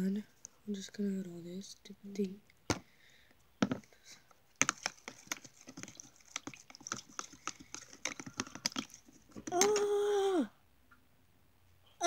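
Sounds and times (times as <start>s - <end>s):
plastic spoon tapping plastic tub: 3.6s - 3.9s, 4.6s - 9.8s.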